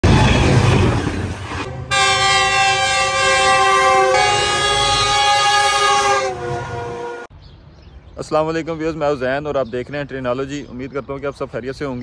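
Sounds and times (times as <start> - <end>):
moving train rumble: 0.0 - 10.8
locomotive air horn blast: 1.7 - 7.3.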